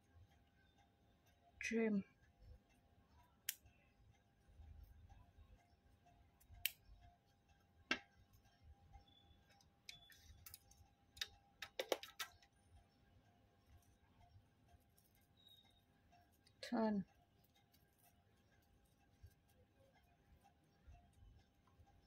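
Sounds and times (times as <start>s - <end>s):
scissors snipping thread: 3.4s - 3.6s.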